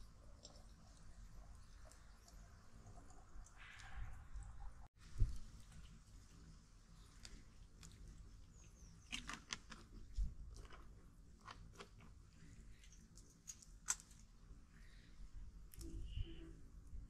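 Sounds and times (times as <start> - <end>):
campfire crackling and snapping: 12.8 - 14.3.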